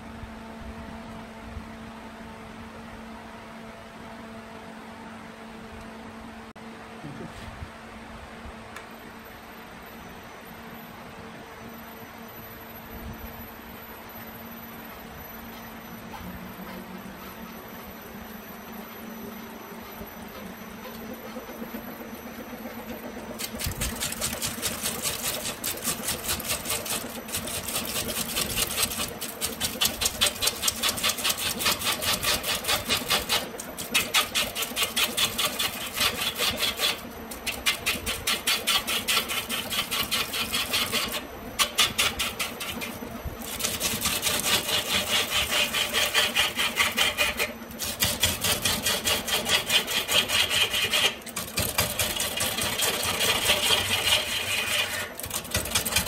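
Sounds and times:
lathe motor humming: 14.8 - 56.0
turning tool chattering on bamboo: 22.9 - 56.0.

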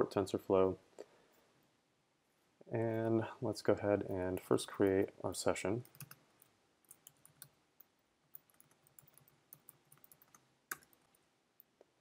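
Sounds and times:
computer keyboard typing: 5.8 - 6.2, 6.9 - 7.5, 8.3 - 11.2.

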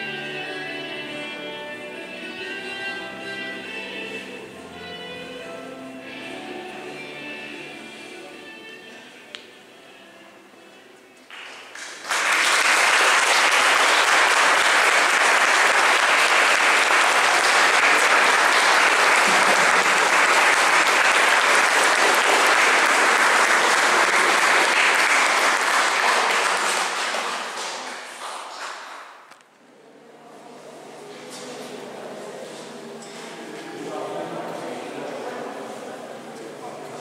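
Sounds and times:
crowd applauding: 11.3 - 29.3.

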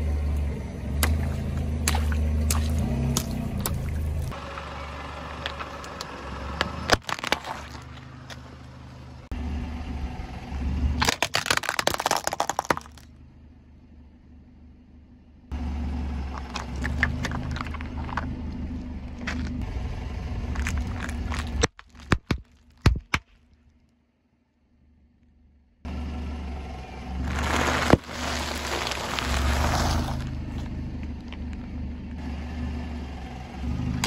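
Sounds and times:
car engine low hum: 0.0 - 34.0
tyre crushing plastic objects: 5.4 - 8.6, 11.0 - 13.0, 16.3 - 18.3, 20.5 - 23.3, 27.3 - 30.6.

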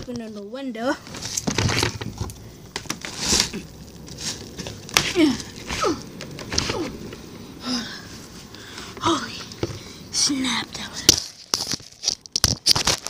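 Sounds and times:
vocal grunts: 3.4 - 3.8, 4.9 - 8.1.

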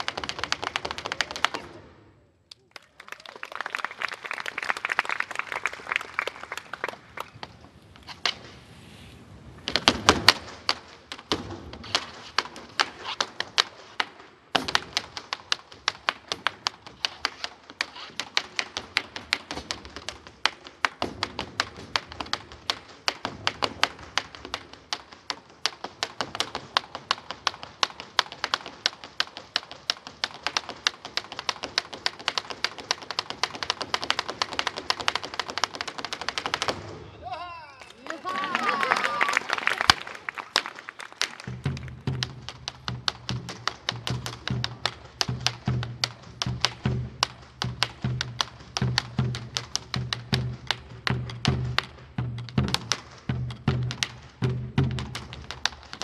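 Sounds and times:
bolas striking: 41.4 - 56.0.

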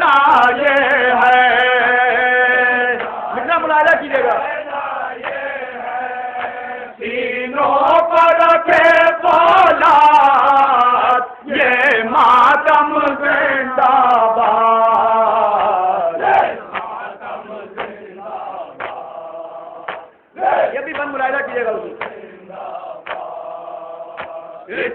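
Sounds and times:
man chanting over loudspeaker: 0.0 - 4.7, 7.9 - 16.7, 20.6 - 22.6.

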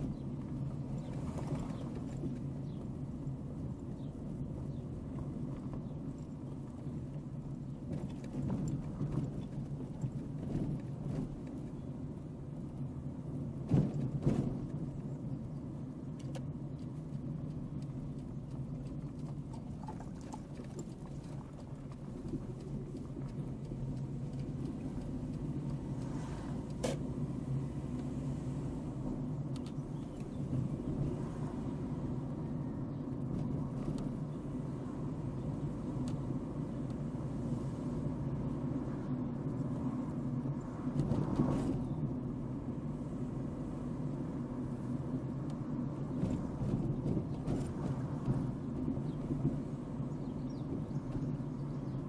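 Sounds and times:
car engine and tyres rumbling: 0.0 - 52.0.

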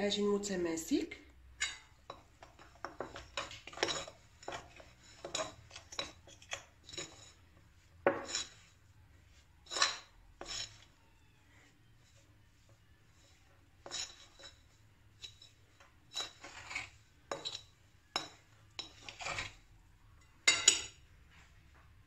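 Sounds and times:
utensil scraping glass bowl: 1.6 - 8.8, 9.6 - 11.0, 13.1 - 19.8.

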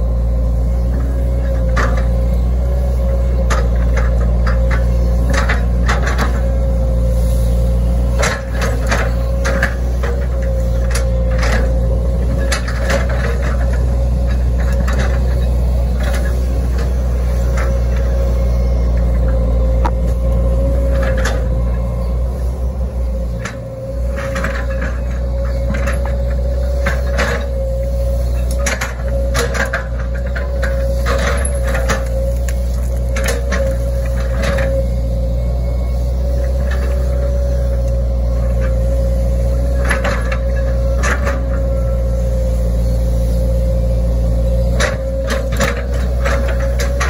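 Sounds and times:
excavator diesel engine running: 0.0 - 47.0.

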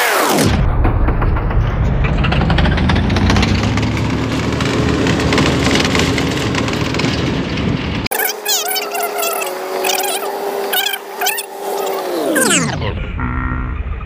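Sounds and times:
vehicle engine and road rumble: 0.6 - 14.0.

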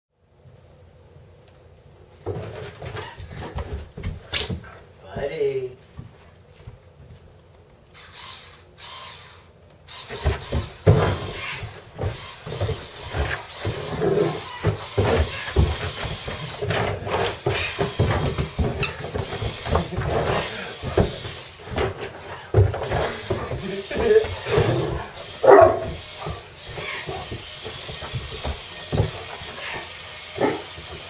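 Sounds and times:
dog paws thumping on carpet: 2.2 - 4.9, 5.8 - 7.4, 10.1 - 31.0
electric screwdriver whirring: 8.0 - 10.6.

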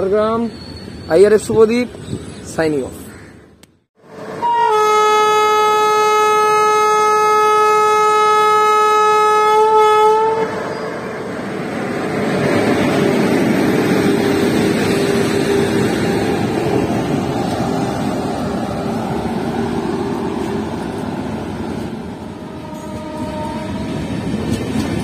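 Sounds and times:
locomotive horn blast: 4.2 - 10.6, 22.4 - 23.9
train wheels rumbling on rail: 10.4 - 25.0.

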